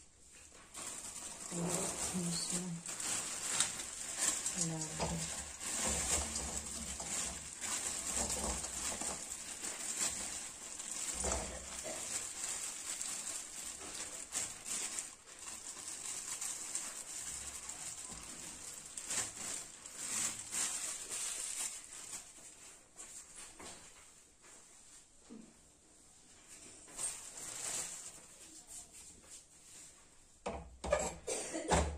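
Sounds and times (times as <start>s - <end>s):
plastic bag crinkling: 0.2s - 23.4s, 26.7s - 29.0s.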